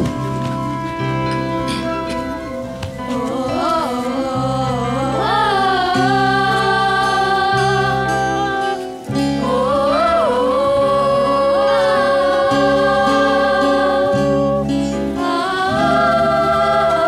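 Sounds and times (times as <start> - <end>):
orchestra accompaniment: 0.0 - 3.9
singing held notes: 0.0 - 17.0.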